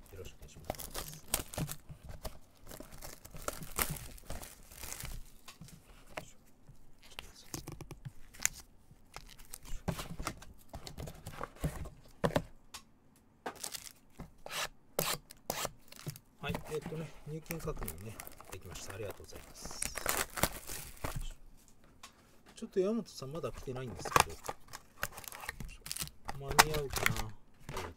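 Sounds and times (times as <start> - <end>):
plastic wrap tearing and crinkling: 0.5 - 1.9, 2.5 - 5.6, 8.2 - 9.8, 13.6 - 21.4, 23.8 - 27.3.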